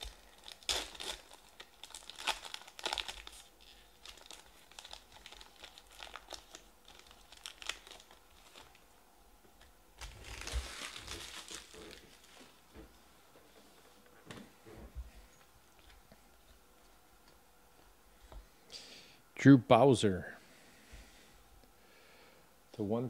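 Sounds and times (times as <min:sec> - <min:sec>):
foil wrapper crinkling and tearing: 0:00.0 - 0:08.9, 0:10.0 - 0:12.6.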